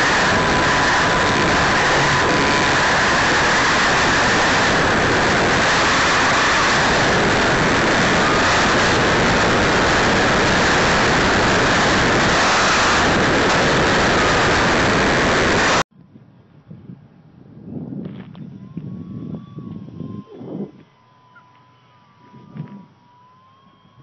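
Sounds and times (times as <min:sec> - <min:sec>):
rushing wind and propeller: 0:00.0 - 0:15.9.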